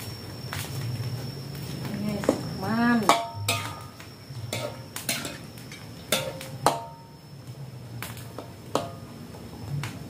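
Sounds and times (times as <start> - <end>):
metal spatula scraping a wok: 4.5 - 6.9.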